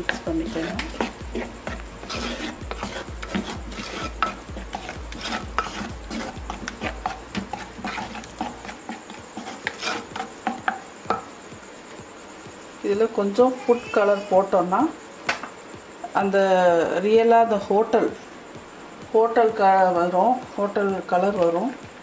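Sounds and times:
wooden spatula scraping clay pot: 0.0s - 11.3s
low rhythmic knocking: 0.0s - 12.8s.

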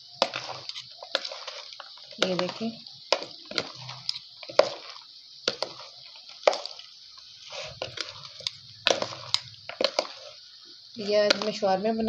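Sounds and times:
spoon clicking and scraping bowl: 0.2s - 6.9s, 7.7s - 10.4s
wet squishing of salad: 0.2s - 10.4s.

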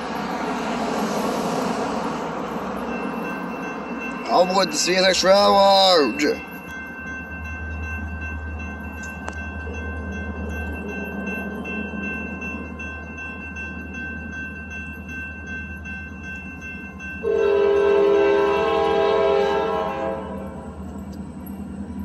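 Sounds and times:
crossing warning bell: 0.0s - 22.0s
train horn blast: 17.2s - 20.6s.

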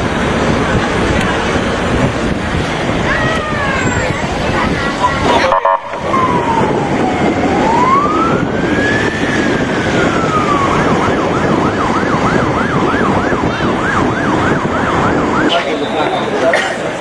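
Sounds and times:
road and engine rumble: 0.0s - 17.0s
emergency vehicle siren: 3.0s - 16.4s.

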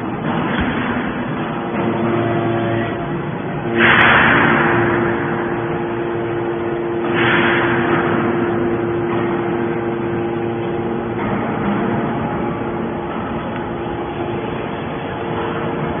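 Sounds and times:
hydraulic power unit humming: 0.0s - 16.0s.

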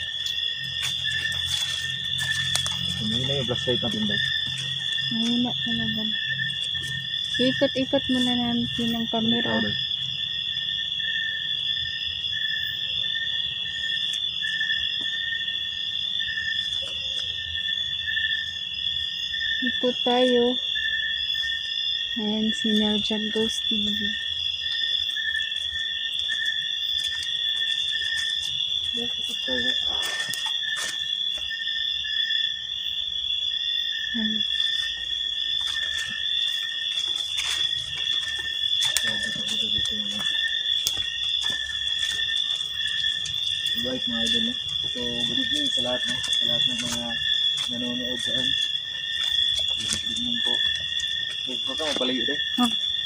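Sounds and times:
foliage rustling: 0.0s - 5.4s, 34.6s - 53.0s
insects high-pitched drone: 0.0s - 53.0s
lower insect trill: 0.0s - 53.0s.

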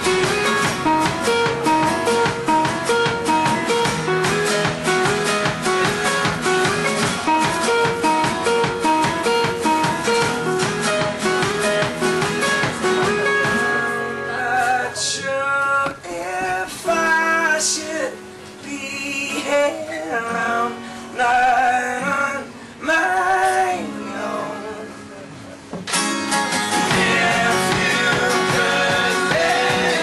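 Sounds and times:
acoustic guitars strumming: 0.0s - 30.0s
people singing: 19.0s - 24.9s, 26.8s - 30.0s.

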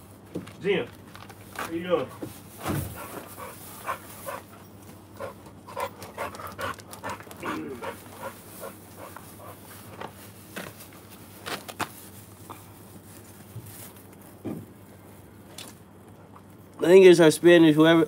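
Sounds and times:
dog panting: 2.9s - 4.6s, 5.2s - 9.7s.

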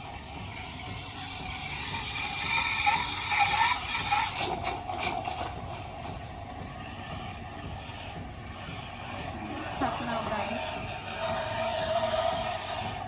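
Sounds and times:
wavering squeal: 0.0s - 5.4s
steam wand hissing into milk: 0.0s - 13.0s.

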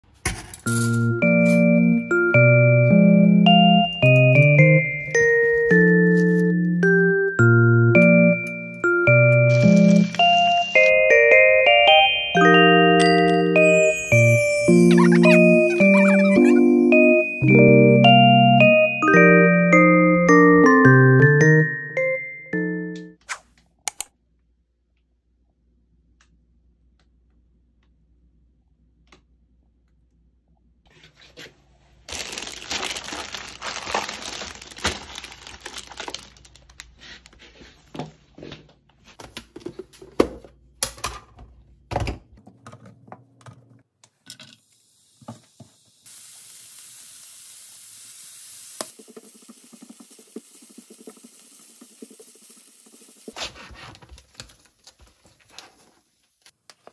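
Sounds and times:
plastic packaging crinkling: 32.1s - 37.4s
carrots sizzling in a pan: 44.8s - 53.4s.

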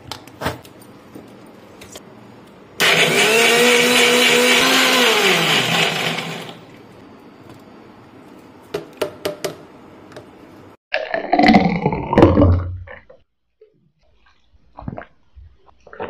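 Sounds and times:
mixer grinder motor whine: 2.8s - 6.8s.

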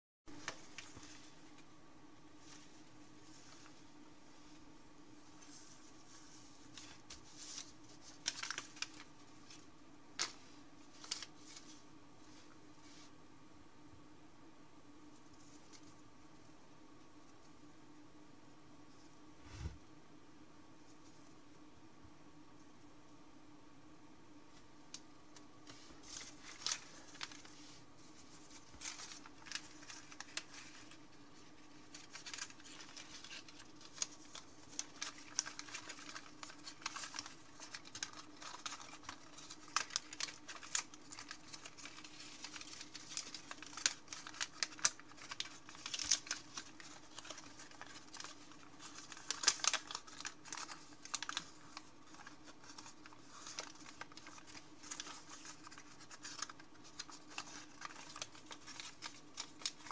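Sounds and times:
paper crackling and rustling: 0.3s - 1.7s, 2.4s - 4.6s, 5.2s - 13.1s, 15.1s - 16.0s, 24.9s - 59.9s
faint steady hum: 0.3s - 59.9s.

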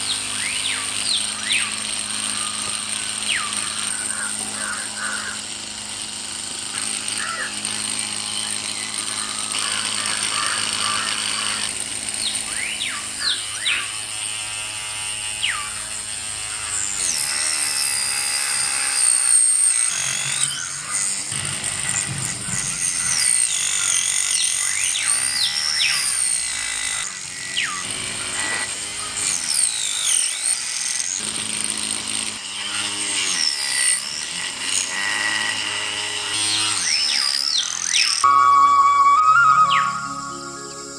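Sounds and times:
small electric motor whirring: 0.0s - 40.9s
music track: 38.2s - 40.9s.

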